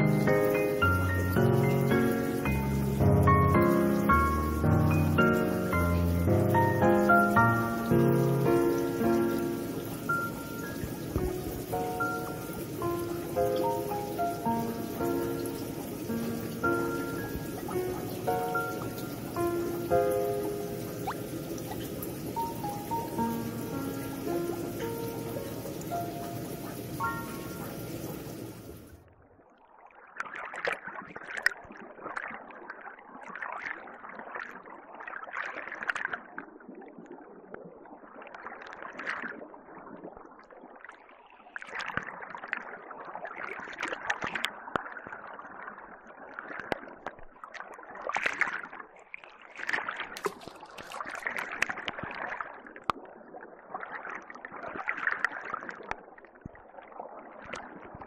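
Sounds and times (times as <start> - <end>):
water drips and clicks: 0.0 - 29.0, 30.1 - 37.2, 41.6 - 45.6, 46.3 - 58.0
water splashing and gurgling: 0.0 - 58.0.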